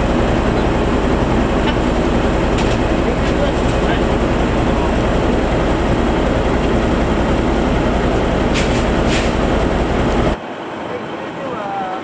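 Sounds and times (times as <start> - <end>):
diesel engine idling: 0.0 - 12.0
brief hisses: 8.5 - 9.4.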